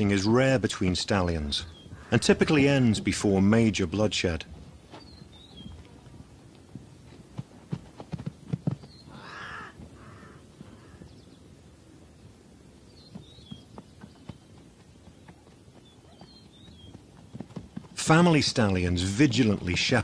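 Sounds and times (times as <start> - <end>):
dull thuds of zebras fighting: 4.5 - 11.2, 13.0 - 18.1
harsh bark-like zebra call: 9.1 - 11.0.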